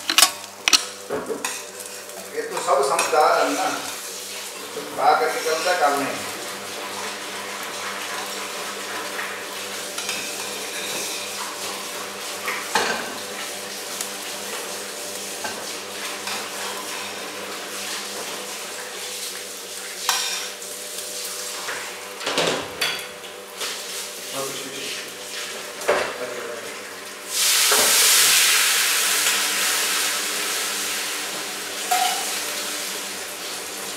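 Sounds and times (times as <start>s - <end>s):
fork scraping a frying pan: 0.0s - 1.9s
food sizzling in a pan: 0.0s - 33.9s.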